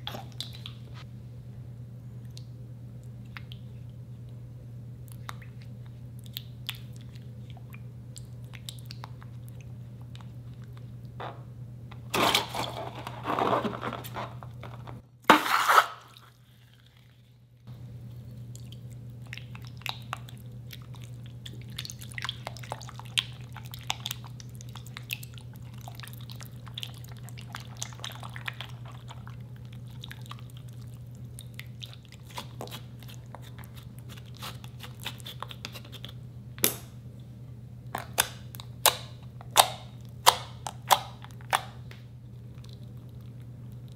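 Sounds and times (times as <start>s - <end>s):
spatula squishing slime: 18.3s - 36.2s.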